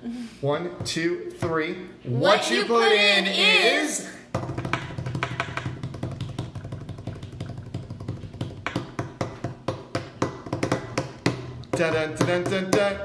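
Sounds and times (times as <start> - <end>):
hands drumming on tabletop: 4.3 - 13.0.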